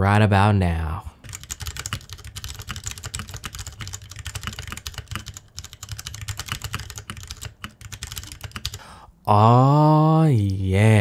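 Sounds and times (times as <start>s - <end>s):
mechanical keyboard typing: 1.2s - 8.8s.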